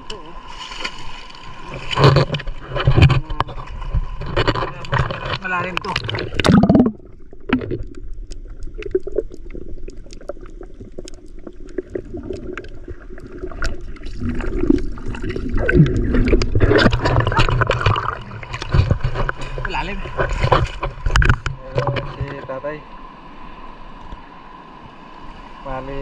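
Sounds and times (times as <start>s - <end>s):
water splashing: 0.0s - 26.0s
muffled underwater churning and gurgling: 1.2s - 26.0s
sharp clicks underwater: 1.7s - 22.5s.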